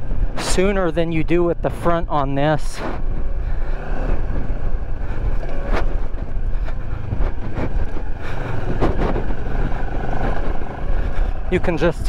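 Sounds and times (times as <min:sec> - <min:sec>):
wind noise on microphone: 0:00.0 - 0:12.0
motorcycle engine running: 0:02.9 - 0:12.0.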